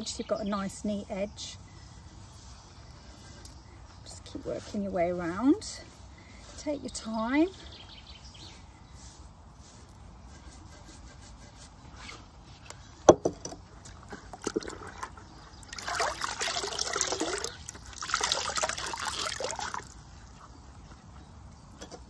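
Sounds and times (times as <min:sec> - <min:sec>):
sponge sloshing in bucket of water: 0:13.9 - 0:20.0.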